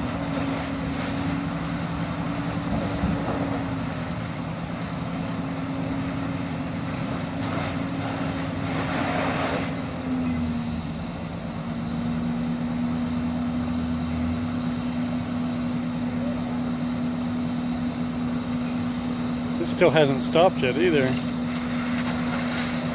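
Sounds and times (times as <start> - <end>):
fire engine running: 0.0 - 22.9
rushing hiss: 7.0 - 9.7, 20.9 - 22.9.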